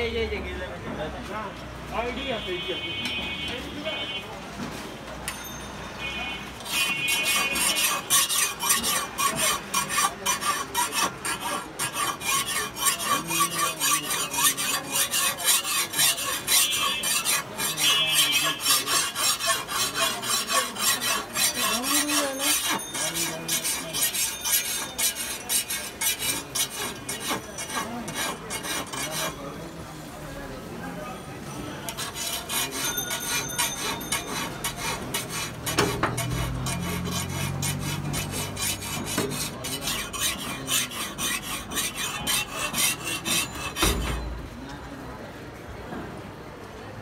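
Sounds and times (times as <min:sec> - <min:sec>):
file rasping on steel blade: 0:06.5 - 0:29.8, 0:31.8 - 0:44.6.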